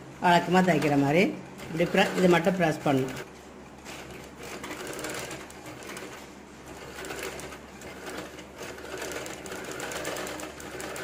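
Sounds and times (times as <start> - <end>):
sewing machine bobbin winding whir: 0.5 - 3.3, 3.9 - 11.0.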